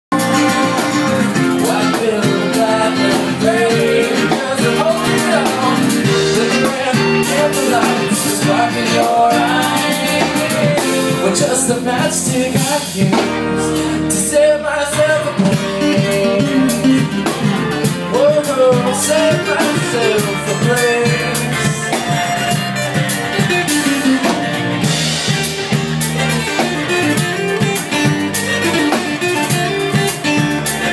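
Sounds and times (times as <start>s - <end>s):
man singing: 0.1s - 22.6s
drum kit: 0.1s - 30.9s
electric bass guitar: 0.1s - 30.9s
strummed acoustic guitars: 0.1s - 30.9s.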